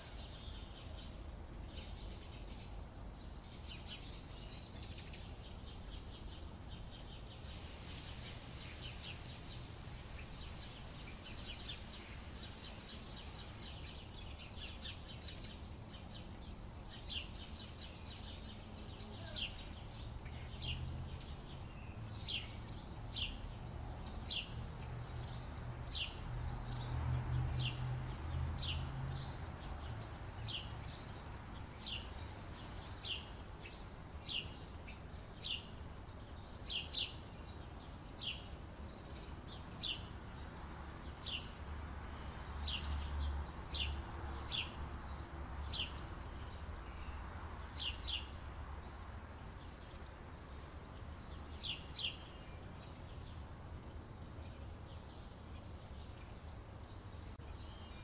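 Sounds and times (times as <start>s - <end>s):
bird chirping: 28.6s - 58.0s.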